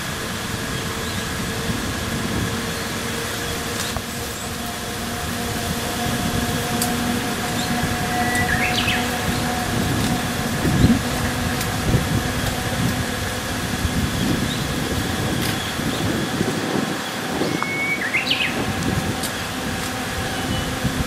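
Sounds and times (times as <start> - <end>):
birds chirping: 0.0 - 21.0
steady mechanical hum: 0.0 - 21.0.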